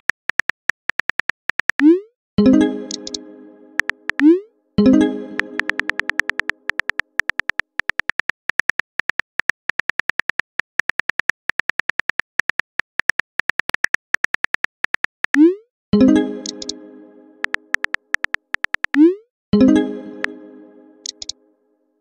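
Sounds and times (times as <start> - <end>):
message chime: 2.4 - 6.5, 16.0 - 17.8, 19.6 - 21.2
phone keyboard tap clicks: 5.6 - 15.2, 17.4 - 19.0.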